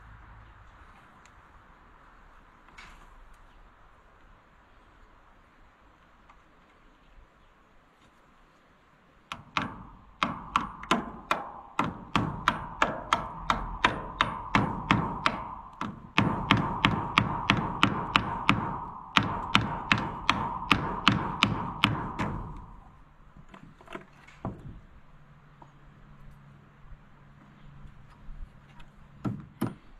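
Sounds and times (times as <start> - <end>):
hand hammer tapping: 9.3 - 23.0.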